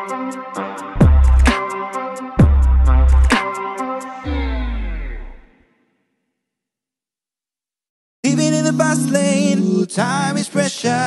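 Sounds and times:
deep bass drop sliding downward: 0:04.2 - 0:05.6.

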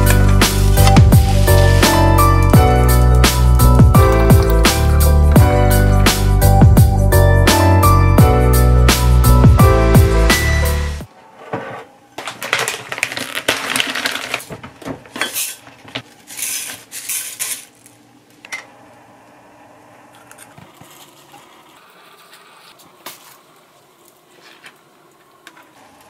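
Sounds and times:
piano music: 0:00.0 - 0:11.1.

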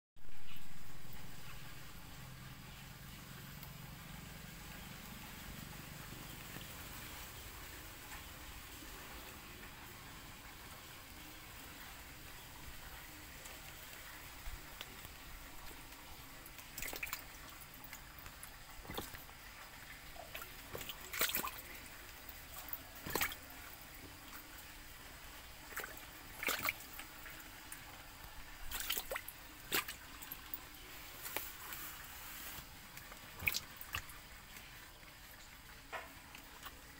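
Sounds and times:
small splashes and plops: 0:11.5 - 0:31.6, 0:32.4 - 0:36.9.

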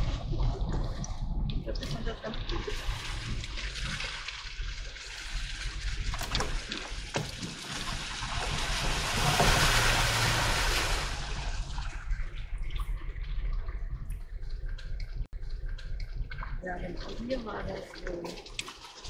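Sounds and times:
water splashing from car through puddle: 0:02.0 - 0:12.2.

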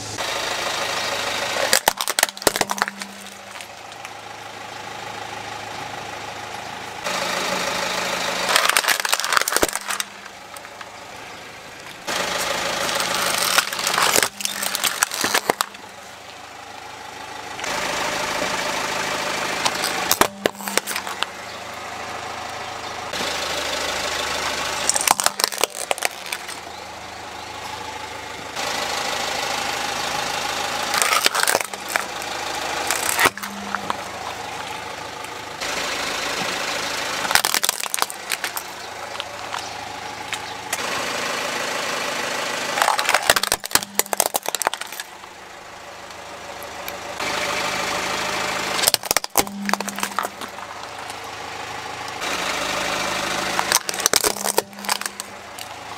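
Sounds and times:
car engine idling: 0:00.0 - 0:55.9
plastic toys cracking under tyre: 0:01.5 - 0:04.2, 0:08.4 - 0:11.0, 0:11.8 - 0:15.9, 0:19.6 - 0:21.3, 0:24.8 - 0:26.8, 0:30.8 - 0:35.4, 0:37.2 - 0:40.9, 0:42.7 - 0:45.3, 0:48.8 - 0:51.2, 0:53.3 - 0:55.8.

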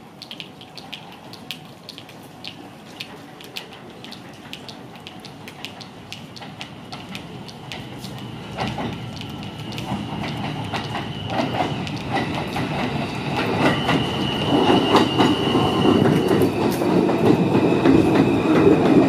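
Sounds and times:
subway train approaching whine: 0:00.0 - 0:19.0
sharp ticks: 0:00.2 - 0:14.0.

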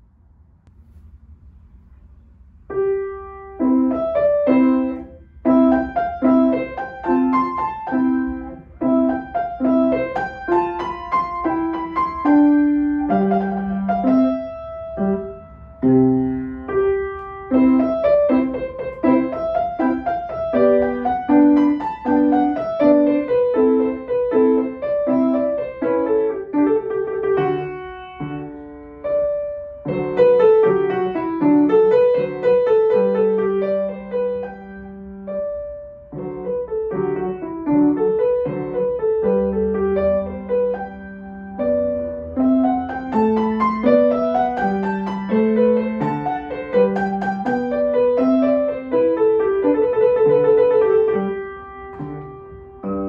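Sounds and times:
solo grand piano: 0:00.0 - 0:53.0.

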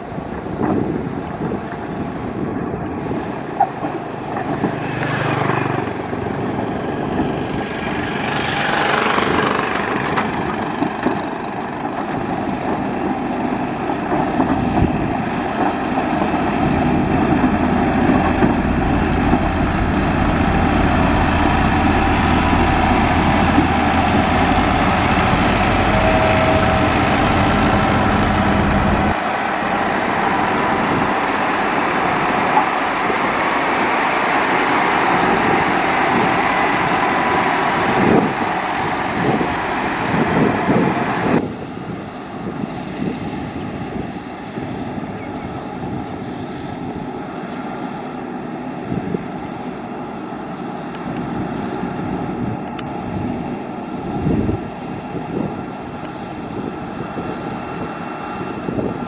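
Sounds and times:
diesel engine running: 0:05.6 - 0:32.9.

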